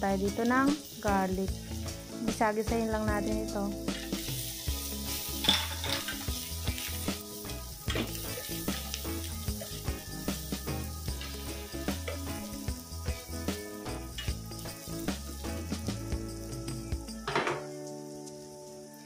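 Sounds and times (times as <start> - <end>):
garlic sizzling in butter: 0.0 - 19.0
soft background music: 0.0 - 19.0
spatula scraping a pan: 3.9 - 7.2.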